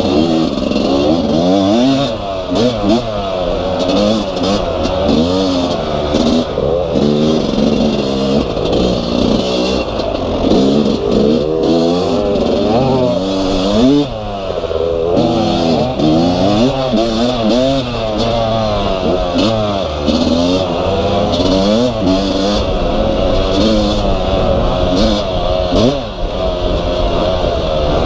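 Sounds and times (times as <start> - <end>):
dirt bike engine revving: 0.0 - 28.0.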